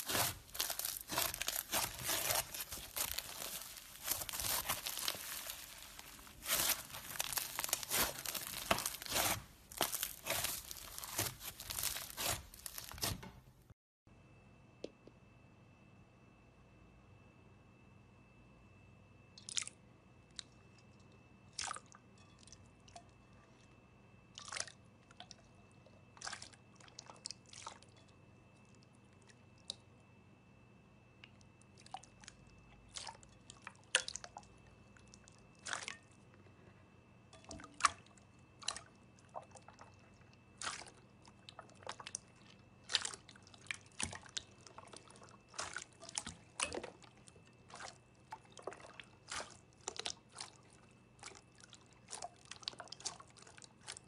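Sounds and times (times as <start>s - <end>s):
slime crackling and popping: 0.0s - 13.4s
faint high tone and hum: 14.1s - 26.0s.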